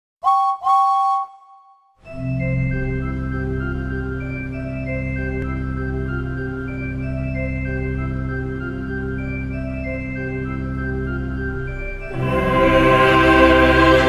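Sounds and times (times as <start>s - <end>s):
steam locomotive whistle: 0.2s - 1.6s
organ music: 2.0s - 14.0s.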